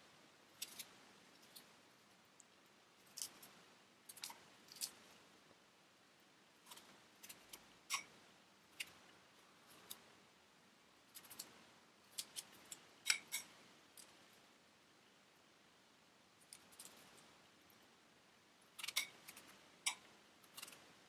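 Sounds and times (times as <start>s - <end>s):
knife cutting strawberries: 0.5s - 1.8s, 6.6s - 10.1s, 11.0s - 14.2s, 18.7s - 21.0s.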